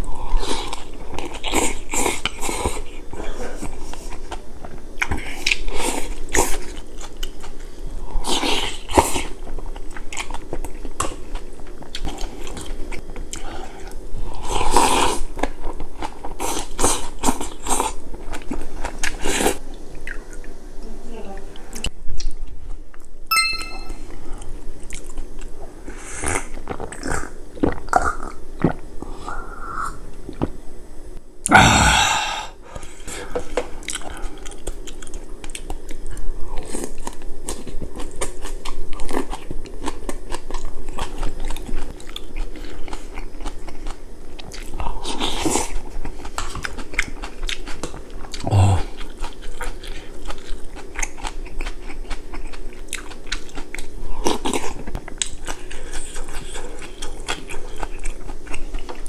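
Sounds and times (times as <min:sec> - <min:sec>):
chewing and crunching food: 0:00.0 - 0:20.6, 0:24.2 - 0:29.4, 0:32.7 - 0:59.0
glass ringing: 0:23.3 - 0:24.0.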